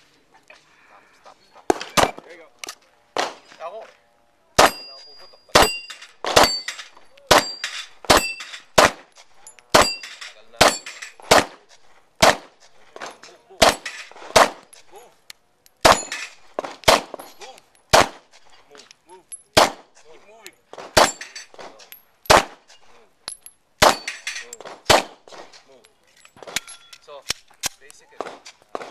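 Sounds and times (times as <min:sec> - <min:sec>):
pistol shots: 0:01.7 - 0:02.3, 0:03.2 - 0:03.6, 0:04.6 - 0:05.0, 0:05.6 - 0:09.1, 0:09.7 - 0:12.5, 0:13.6 - 0:14.7, 0:15.8 - 0:17.3, 0:17.9 - 0:18.3, 0:19.6 - 0:20.0, 0:20.7 - 0:21.3, 0:22.2 - 0:22.7, 0:23.8 - 0:25.5, 0:26.4 - 0:28.9
steel targets ringing: 0:04.6 - 0:08.8, 0:09.6 - 0:11.2, 0:15.7 - 0:16.4, 0:23.3 - 0:24.6.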